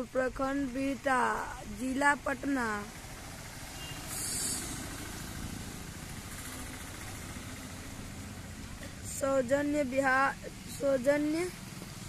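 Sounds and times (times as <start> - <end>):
brief hiss: 3.7 - 5.0.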